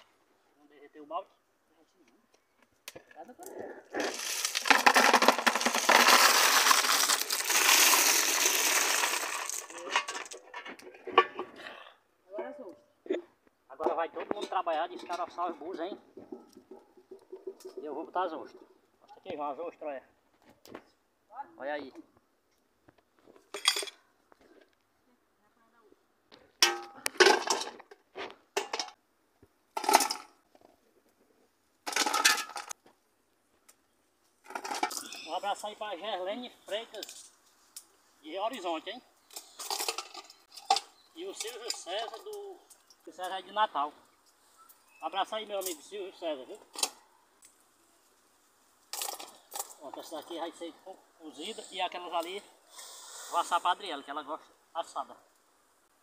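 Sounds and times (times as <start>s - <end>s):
shells clattering in pot: 4.0s - 11.4s, 29.8s - 30.4s, 31.8s - 32.8s, 34.4s - 35.2s, 39.3s - 43.0s, 48.9s - 49.8s
water poured into bucket: 4.1s - 9.8s.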